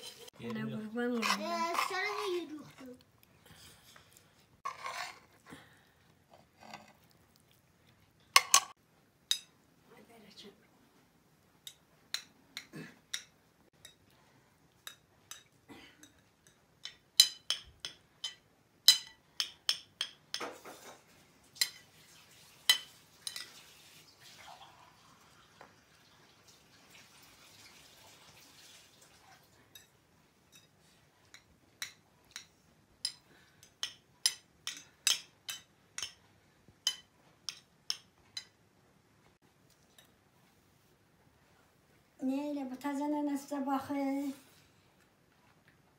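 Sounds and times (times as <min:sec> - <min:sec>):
spoons clinking on china plates: 0:08.4 - 0:09.5, 0:14.8 - 0:21.0, 0:21.6 - 0:21.9, 0:22.7 - 0:23.6, 0:30.5 - 0:36.2, 0:36.8 - 0:38.6.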